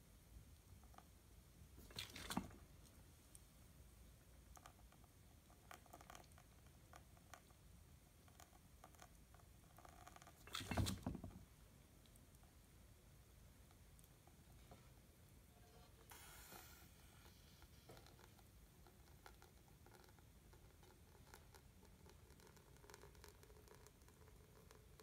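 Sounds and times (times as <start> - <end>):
small ticks and patters: 4.4 - 7.6, 17.2 - 25.0.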